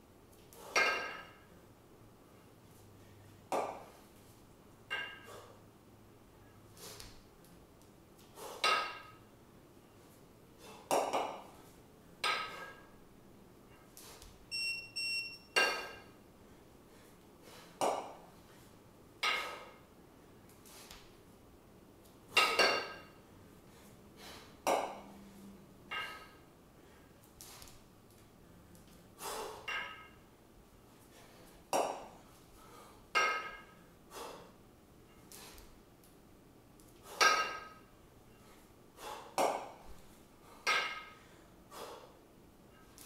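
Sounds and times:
kettlebells clanking together: 0.6s - 1.5s, 4.9s - 5.6s, 8.5s - 9.2s, 12.2s - 12.9s, 15.5s - 16.2s, 19.2s - 19.8s, 22.3s - 23.2s, 25.9s - 26.4s, 29.3s - 30.2s, 33.1s - 33.8s, 37.0s - 37.9s, 40.6s - 41.3s
short high beeps: 14.5s - 15.6s.

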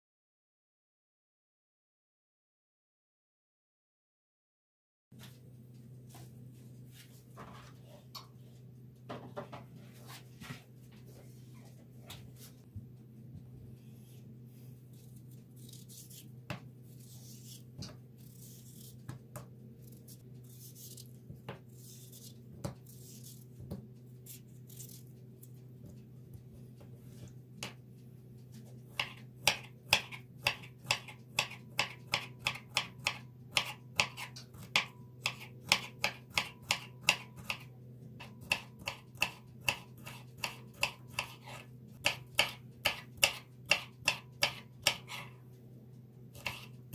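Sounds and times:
steady low hum: 5.2s - 46.9s
knife chopping cucumber on table: 28.9s - 45.3s, 46.4s - 46.8s.

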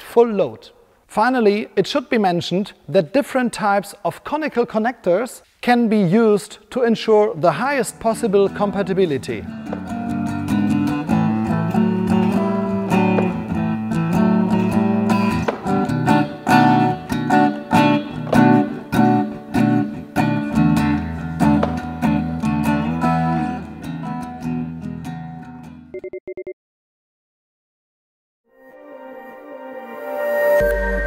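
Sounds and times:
guitar chords strummed: 8.1s - 25.9s.

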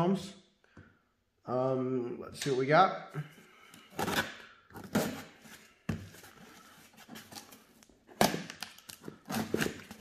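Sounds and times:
knife cutting packing tape: 8.2s - 10.0s.

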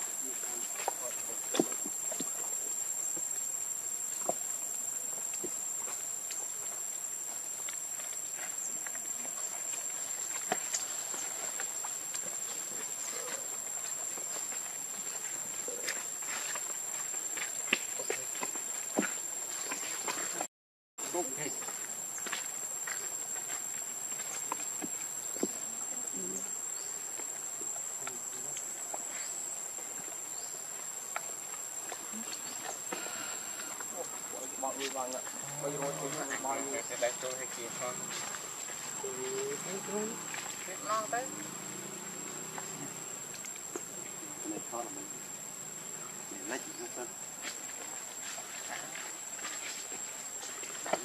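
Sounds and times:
high-pitched insect drone: 32.0s - 51.0s.

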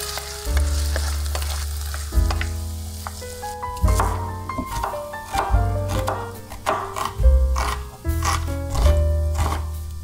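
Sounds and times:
knife strikes on cutting board: 3.9s - 9.7s.

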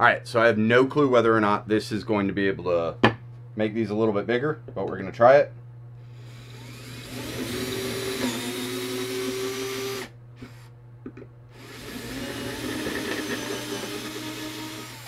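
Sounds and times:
cordless drill boring wood: 6.1s - 10.6s, 11.5s - 15.0s.

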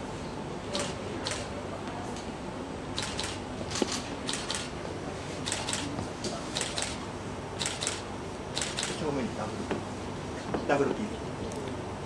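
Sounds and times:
camera shutter clicking: 3.0s - 4.7s, 5.5s - 5.9s, 7.6s - 8.0s, 8.6s - 9.0s.

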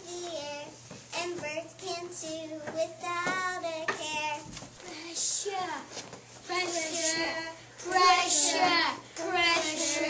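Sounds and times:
children singing: 6.5s - 10.0s.

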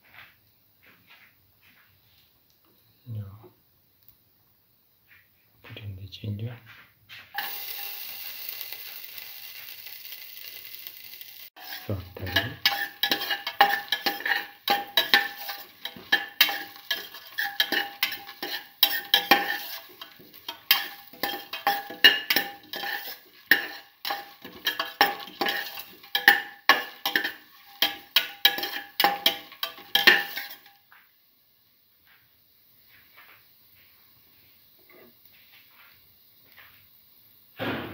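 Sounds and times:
spatula scraping a metal pot: 7.4s - 10.2s, 11.0s - 30.8s.

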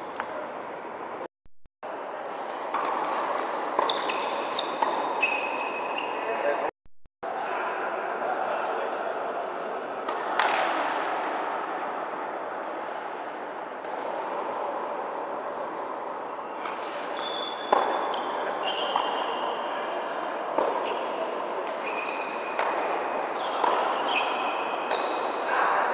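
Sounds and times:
indoor hall background noise: 0.0s - 25.9s
shoes squeaking on court: 3.8s - 6.4s, 17.2s - 19.5s, 21.7s - 25.3s
tennis ball hit and bouncing: 10.1s - 10.8s, 17.7s - 19.2s, 20.6s - 21.0s, 22.6s - 24.2s.

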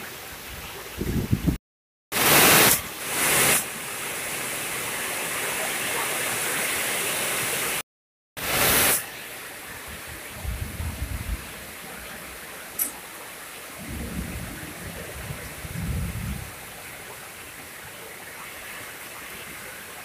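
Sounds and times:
heavy rain on pond: 2.1s - 7.8s, 8.4s - 20.0s
low rumbling: 10.3s - 11.6s.

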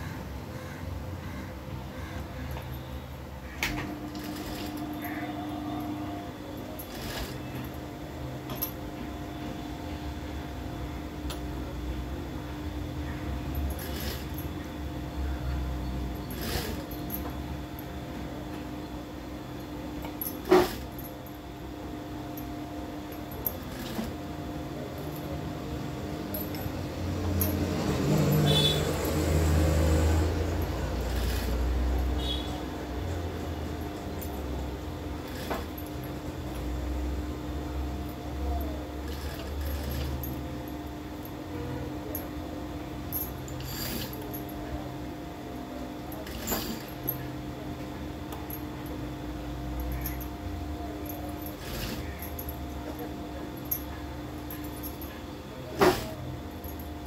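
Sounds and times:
sewing machine motor humming: 2.0s - 8.7s, 13.4s - 17.5s, 20.0s - 21.3s, 22.8s - 37.0s, 37.7s - 42.2s, 43.0s - 44.4s, 46.2s - 47.1s, 51.0s - 55.1s
sewing machine stitching: 3.7s - 7.8s, 13.6s - 14.5s, 16.2s - 17.1s, 20.3s - 21.0s, 23.5s - 24.2s, 26.4s - 32.5s, 35.2s - 36.0s, 39.0s - 40.4s, 43.5s - 44.3s, 46.2s - 47.0s, 51.4s - 52.4s, 55.8s - 56.2s.

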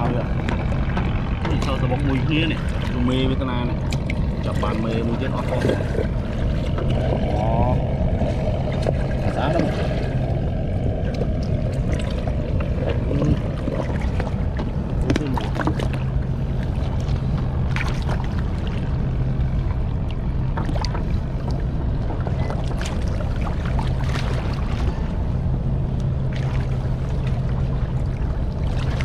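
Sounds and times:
low water rumble: 0.0s - 29.0s
river water splashing: 0.0s - 29.0s.

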